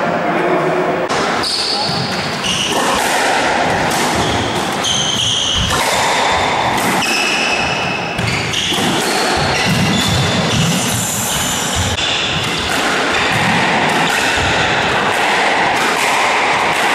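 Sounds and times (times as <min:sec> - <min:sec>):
squash ball struck by racquets: 0:01.1 - 0:16.9
shoes squeaking on wooden floor: 0:01.4 - 0:02.8, 0:03.7 - 0:12.5.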